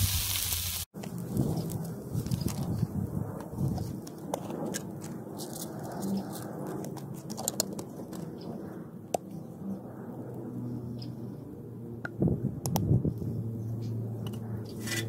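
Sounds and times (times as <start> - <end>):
food sizzling on griddle: 0.0 - 0.9.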